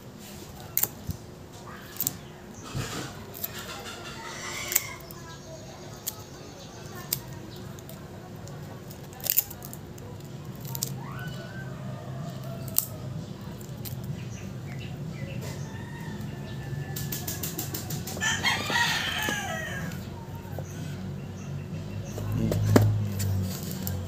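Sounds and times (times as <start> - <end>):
rooster crowing: 11.0 - 13.2, 15.4 - 20.2.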